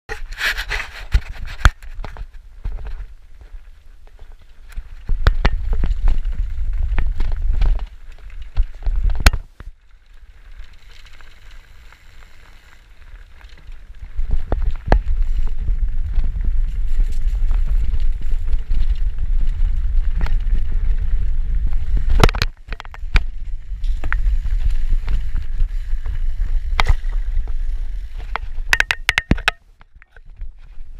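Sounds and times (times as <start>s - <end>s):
bicycle knocking and rattling: 0.1s - 30.9s
wind buffeting microphone: 13.8s - 29.3s.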